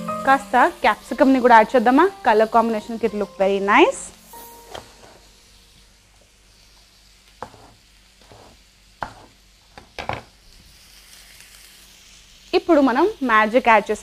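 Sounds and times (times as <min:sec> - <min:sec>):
faint sizzling of frying vegetables: 0:00.0 - 0:14.0
knife cutting on wooden board: 0:07.4 - 0:09.9.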